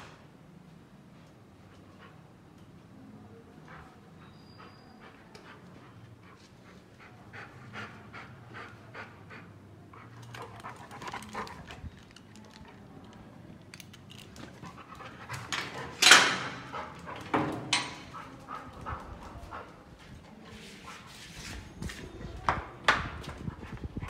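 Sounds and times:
dog panting: 3.7 - 12.2, 14.5 - 16.0, 16.6 - 17.4, 18.0 - 21.1
metal gate rattling: 15.5 - 16.7.

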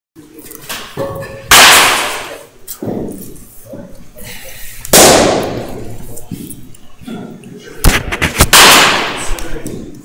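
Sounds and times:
baseball bat cracking ball: 1.5 - 2.4, 4.9 - 5.8, 7.8 - 9.3.

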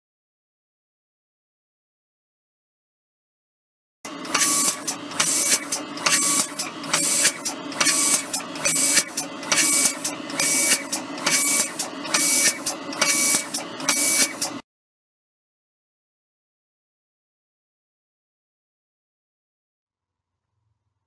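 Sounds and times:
mechanical running noise: 4.1 - 14.6
spray gun hissing: 4.3 - 14.5.

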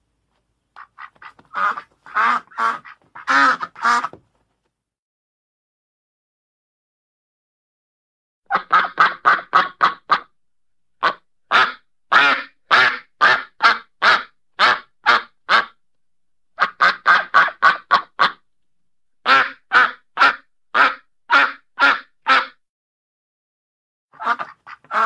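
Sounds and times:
duck quacking: 0.8 - 4.2, 8.5 - 10.3, 11.0 - 15.8, 16.6 - 18.4, 19.2 - 22.6, 24.2 - 25.0.

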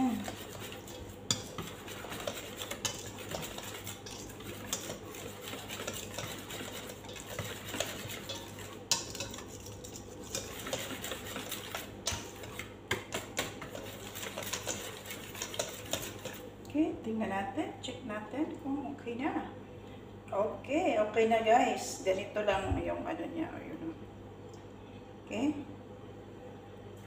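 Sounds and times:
utensil scraping metal bowl: 0.0 - 16.5.

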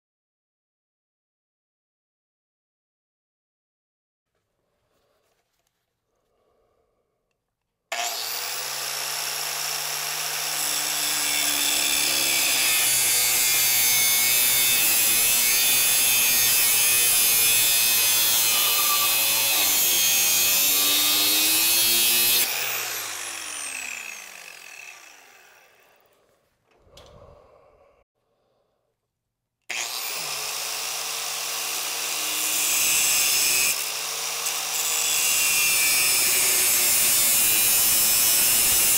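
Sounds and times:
angle grinder cutting metal: 7.9 - 26.2, 29.7 - 38.9
grinder spinning down whine: 8.0 - 26.1, 29.7 - 32.6.

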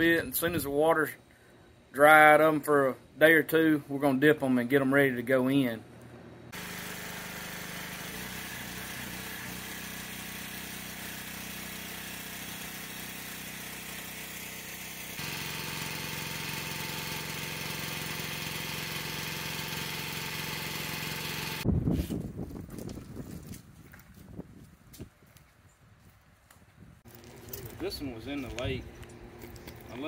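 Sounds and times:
pressure washer engine humming: 6.5 - 21.6, 27.1 - 30.0.

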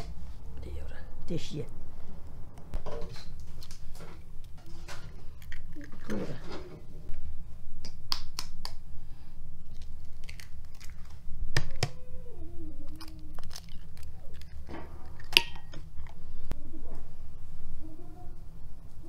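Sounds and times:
steady low rumble: 0.0 - 4.6, 6.8 - 19.0
eggshells cracking and peeling: 5.3 - 6.2, 9.6 - 12.0, 12.8 - 16.2.

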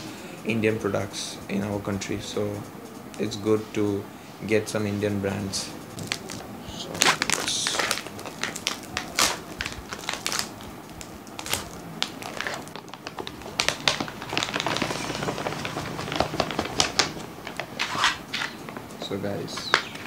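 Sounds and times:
plastic pouch crinkling: 5.9 - 20.0.

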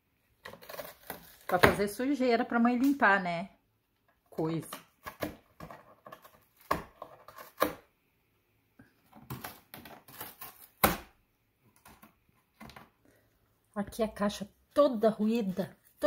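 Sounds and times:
cat gnawing cardboard: 0.4 - 1.6.

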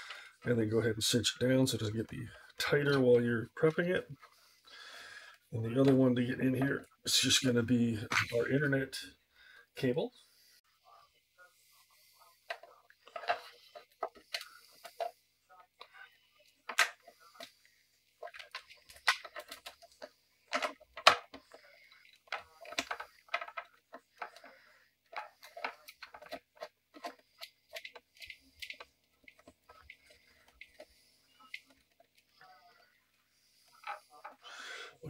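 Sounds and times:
clicks and rattles of plastic parts: 12.4 - 15.2, 16.6 - 17.6, 18.2 - 32.5, 33.6 - 34.5.

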